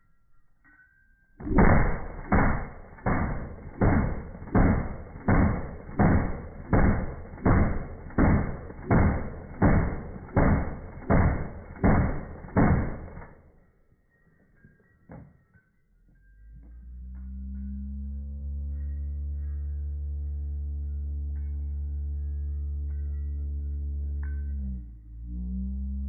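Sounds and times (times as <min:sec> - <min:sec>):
rifle gunfire booms: 0:01.4 - 0:13.3.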